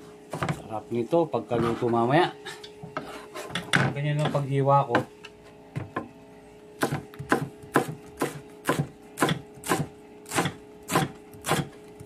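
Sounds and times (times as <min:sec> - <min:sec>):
knife chopping on cutting board: 0:06.8 - 0:11.7.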